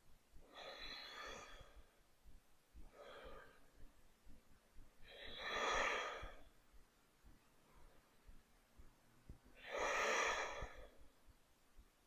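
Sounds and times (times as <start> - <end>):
woman breathing: 0.3 - 2.1, 2.8 - 6.6, 9.5 - 11.2.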